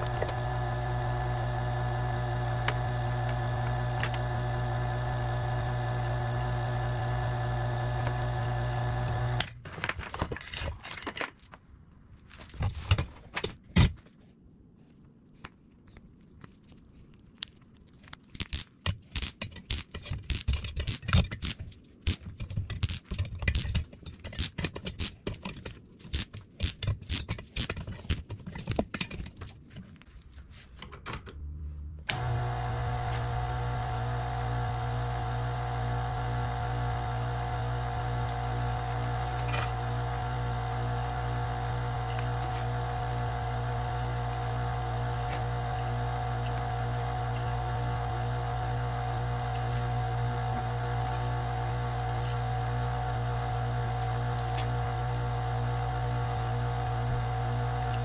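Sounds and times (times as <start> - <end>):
gear motor humming: 0.0 - 9.5, 32.0 - 58.0
wire clicking and scraping: 15.4 - 32.4.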